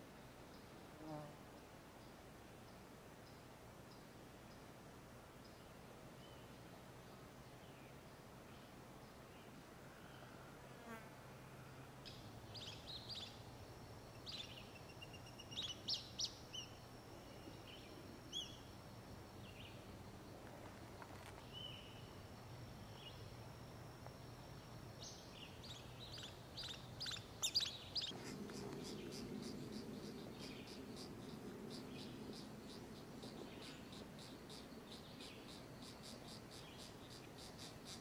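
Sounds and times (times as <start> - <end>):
birds chirping: 25.0 - 37.9.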